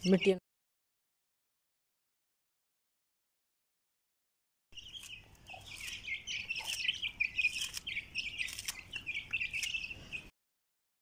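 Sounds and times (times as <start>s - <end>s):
chicks peeping: 0.0s - 0.4s, 4.8s - 10.3s.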